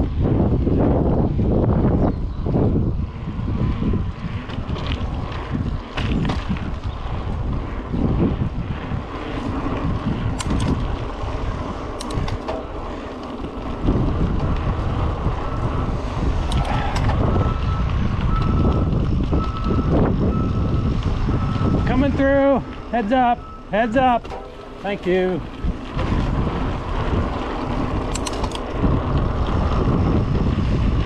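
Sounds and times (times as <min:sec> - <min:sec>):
bike rattling over dirt trail: 0:00.0 - 0:23.0, 0:24.1 - 0:31.0
wind buffeting microphone: 0:00.0 - 0:31.0
sharp clicks: 0:10.3 - 0:10.8, 0:11.9 - 0:12.6, 0:16.4 - 0:17.2, 0:28.1 - 0:28.8.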